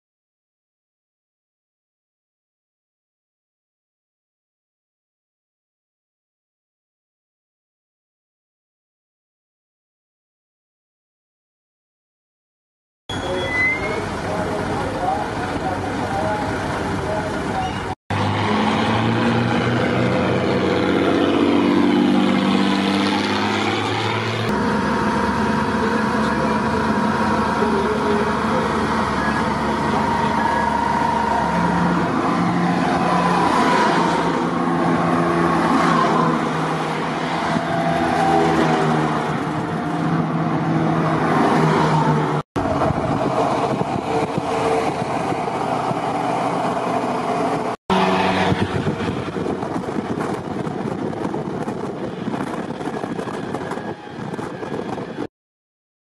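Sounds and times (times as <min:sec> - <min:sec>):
diesel engines of passing vehicles: 0:13.1 - 0:55.3
tyre and road noise: 0:13.1 - 0:55.3.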